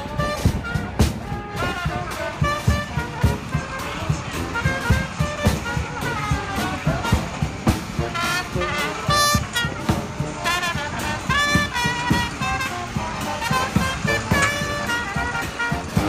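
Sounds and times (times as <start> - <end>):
held brass-like notes: 0.0 - 16.0.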